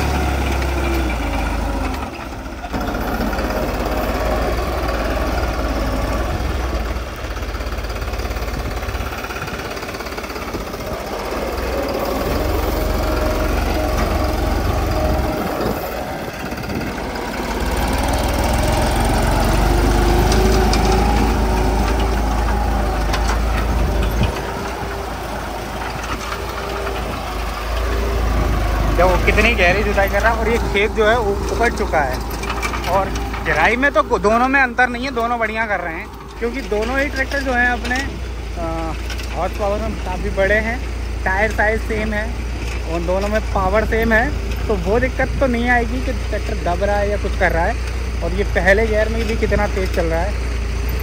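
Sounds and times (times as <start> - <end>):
tractor diesel engine under load: 0.0 - 51.0.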